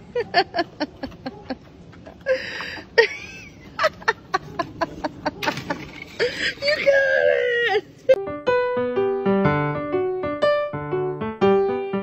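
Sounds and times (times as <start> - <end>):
person laughing: 0.0 - 1.6, 2.2 - 8.2.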